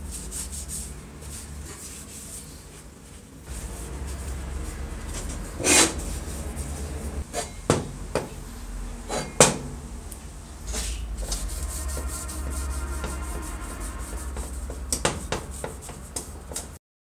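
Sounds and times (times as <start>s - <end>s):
pad rubbing on steel: 3.5s - 7.3s, 10.7s - 16.8s.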